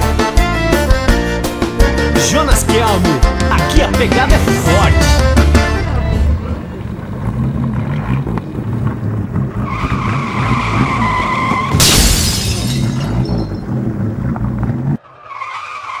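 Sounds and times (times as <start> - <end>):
car engine throbbing: 0.0 - 15.0
tyre squeal: 5.6 - 12.0, 12.9 - 16.0.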